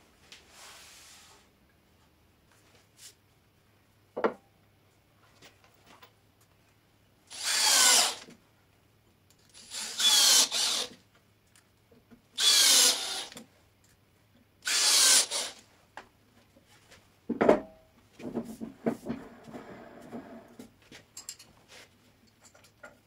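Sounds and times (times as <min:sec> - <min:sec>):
cordless drill driving screws: 0:07.3 - 0:08.3, 0:09.6 - 0:11.0, 0:12.4 - 0:13.4, 0:14.6 - 0:15.6.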